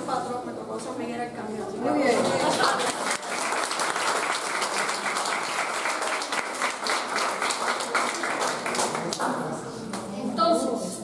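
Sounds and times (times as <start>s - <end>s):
small group applauding: 2.1s - 10.0s.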